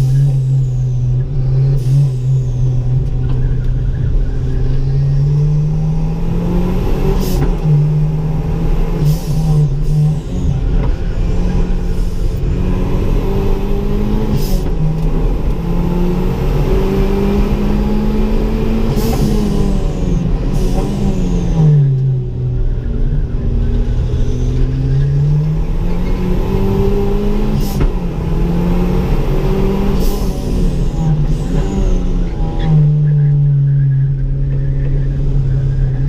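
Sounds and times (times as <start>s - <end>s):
car engine running hard: 0.0s - 36.0s.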